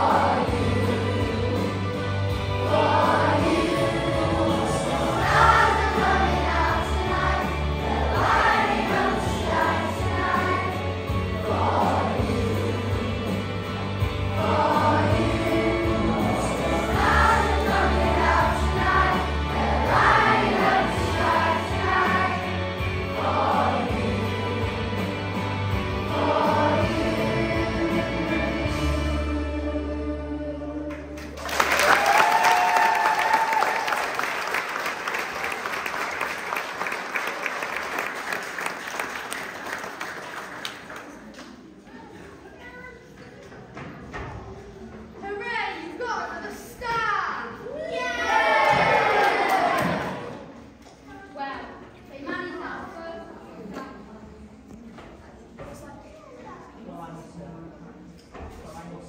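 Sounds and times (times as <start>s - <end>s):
children singing in unison: 0.0s - 30.9s
instrumental backing music: 0.0s - 30.9s
audience applause: 31.2s - 41.6s, 48.5s - 50.3s.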